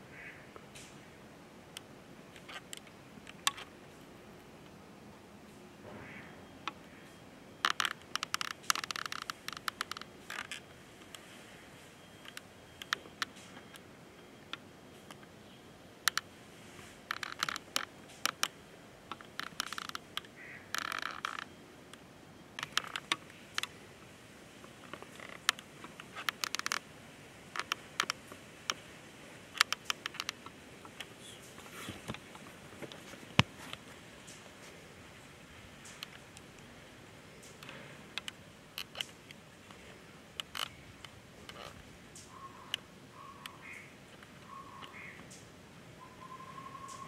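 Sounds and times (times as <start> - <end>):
faint background hiss: 0.0 - 47.0
sharp clicks: 12.2 - 15.3, 16.1 - 16.3, 17.1 - 22.0, 22.6 - 23.8, 27.5 - 28.8, 29.5 - 34.4, 37.4 - 39.8, 40.4 - 45.5.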